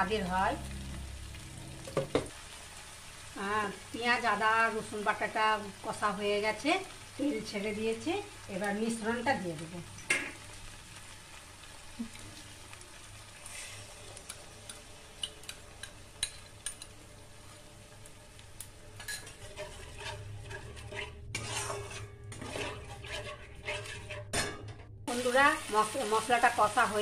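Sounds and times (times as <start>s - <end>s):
paste frying in oil with crackles: 0.0s - 24.3s, 25.1s - 27.0s
metal spatula scraping pan: 19.0s - 24.8s.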